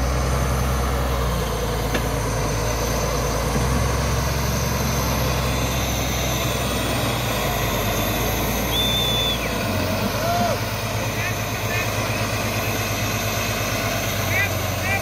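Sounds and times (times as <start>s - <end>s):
diesel engine running under load: 0.0s - 15.0s
short high whistle: 8.6s - 9.5s.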